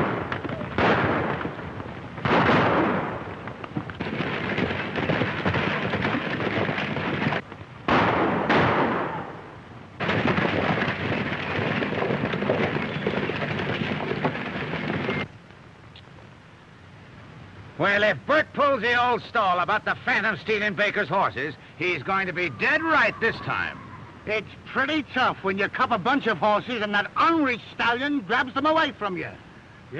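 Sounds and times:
horses hooves galloping on dirt: 0.0 - 8.0, 10.0 - 15.9.

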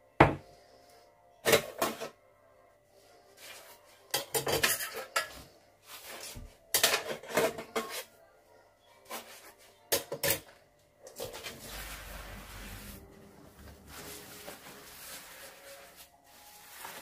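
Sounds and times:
metal pot clinking and knocking: 4.1 - 5.4
scrubbing pot: 11.2 - 17.0.

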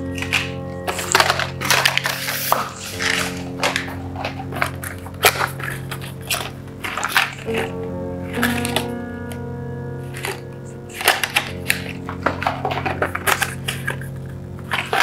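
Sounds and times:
background music with sustained chords: 0.0 - 15.0
rustling packaging: 0.0 - 15.0
sharp clicks of packaging: 0.0 - 15.0.

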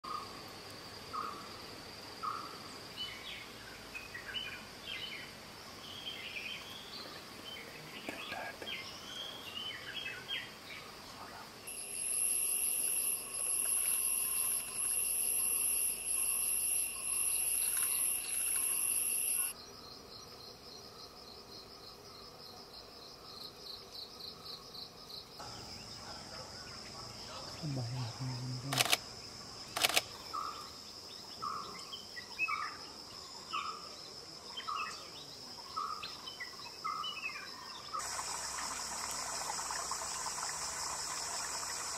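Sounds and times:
pulsing insect trill: 11.6 - 22.2, 23.0 - 41.9
high-pitched insect drone: 11.7 - 19.6, 38.0 - 41.9
loud pulsing insect buzz: 11.7 - 20.8.

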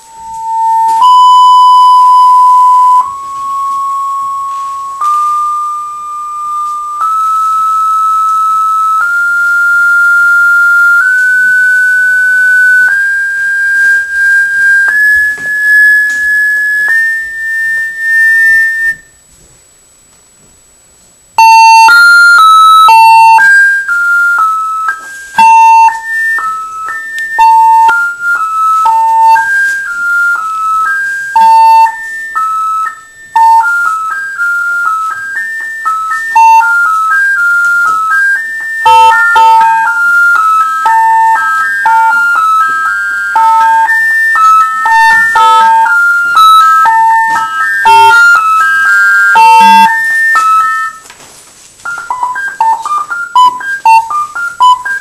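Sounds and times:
test tone stepping up in pitch: 0.0 - 19.2, 21.4 - 51.0, 51.8 - 55.0
quick electronic tune: 21.4 - 51.0, 51.9 - 55.0.

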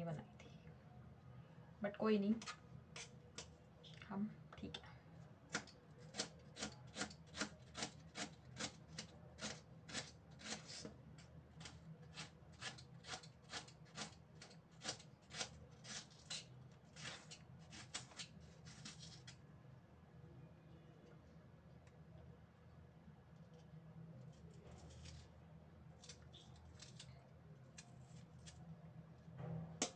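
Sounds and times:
knife slicing onion on board: 5.5 - 11.0, 11.6 - 19.3.

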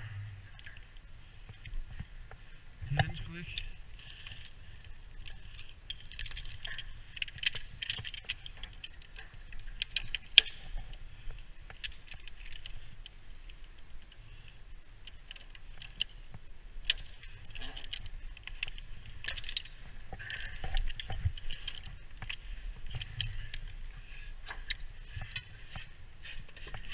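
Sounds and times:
metal carabiners clinking: 2.8 - 14.2, 16.8 - 25.8.

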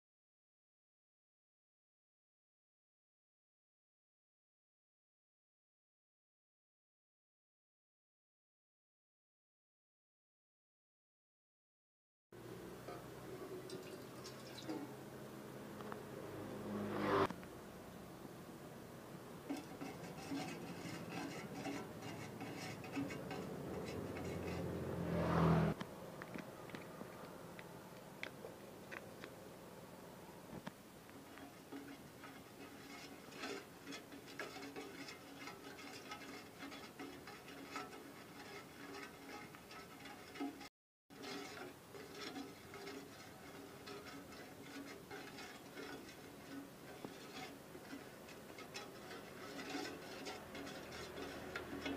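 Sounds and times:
loud rushing noise: 16.0 - 17.4
plastic spoon scraping metal pot: 19.4 - 24.8, 31.1 - 51.9
spice paste frying in oil: 31.1 - 51.9.

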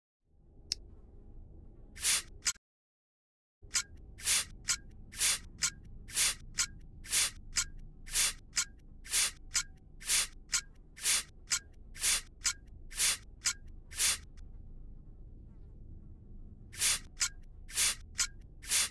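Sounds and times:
rhythmic hissing bursts: 2.0 - 2.5, 3.7 - 14.4, 16.8 - 18.9.

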